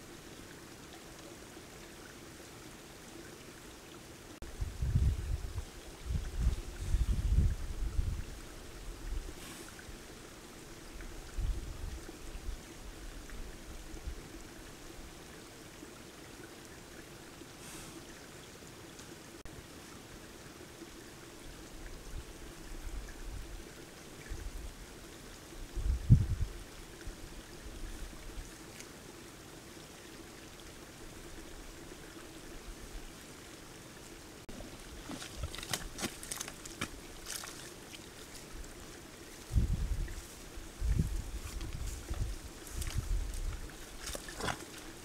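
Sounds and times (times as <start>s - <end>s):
splashes and sucking mud: 34.5s - 38.6s, 41.3s - 45.0s
mud and water sloshing: 34.5s - 45.0s.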